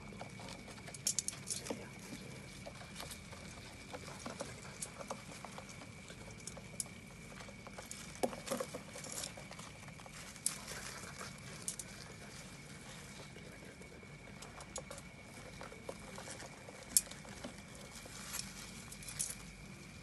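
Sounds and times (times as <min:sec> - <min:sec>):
dry leaves rustling: 0:07.2 - 0:14.6, 0:15.3 - 0:20.0.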